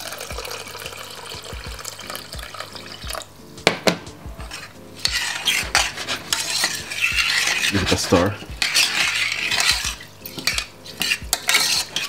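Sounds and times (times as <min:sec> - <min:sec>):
water pouring into pot: 0:00.0 - 0:03.4
sharp knocks: 0:03.6 - 0:04.5
metal spoon stirring in pot: 0:04.4 - 0:12.0.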